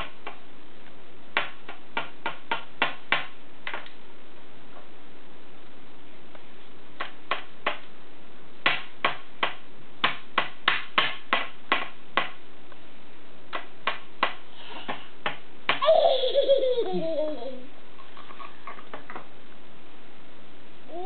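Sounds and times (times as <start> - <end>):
crayon tapping tabletop: 8.6 - 12.4.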